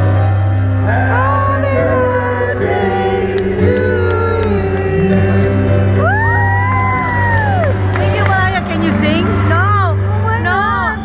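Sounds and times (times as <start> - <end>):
music with bass line: 0.0 - 11.0
person singing: 0.9 - 6.5.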